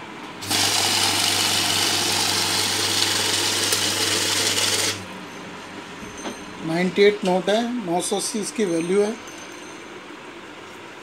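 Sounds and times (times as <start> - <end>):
money counting machine whirring: 0.4 - 5.0.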